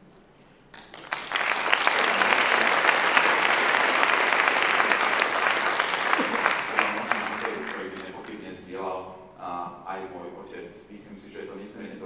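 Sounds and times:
audience applause: 0:00.8 - 0:08.4.

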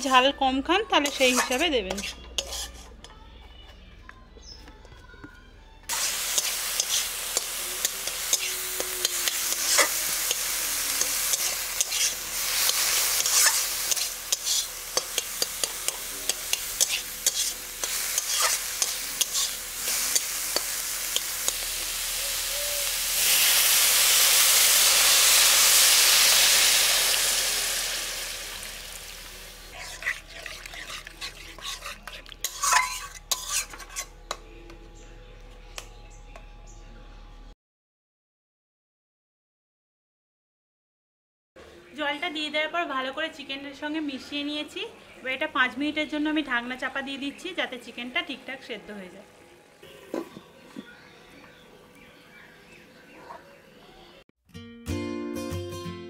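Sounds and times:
metal spatula scraping a pan: 0:00.9 - 0:03.2, 0:05.9 - 0:21.8, 0:29.6 - 0:34.4
water hissing in a hot pan: 0:05.9 - 0:31.2
meat sizzling in a pan: 0:05.9 - 0:33.7.

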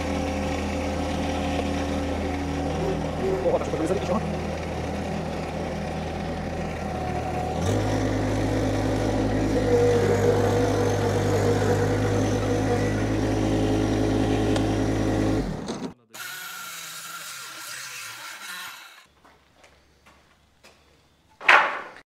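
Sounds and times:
tractor diesel engine running: 0:00.0 - 0:17.1.

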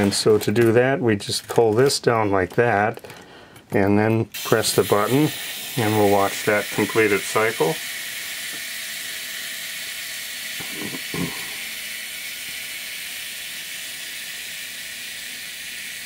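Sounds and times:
mechanical self-timer whirring: 0:04.4 - 0:16.0.

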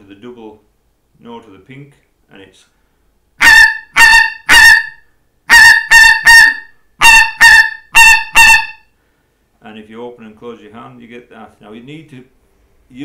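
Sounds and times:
goose call blown: 0:03.4 - 0:08.9.

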